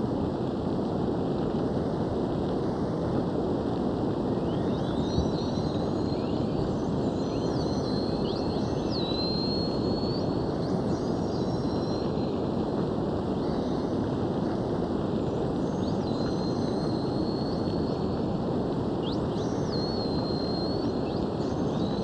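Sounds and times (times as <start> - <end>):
boat motor and water: 0.0 - 22.0
faint thin whistling tones: 4.3 - 12.6, 13.3 - 18.4, 19.0 - 22.0.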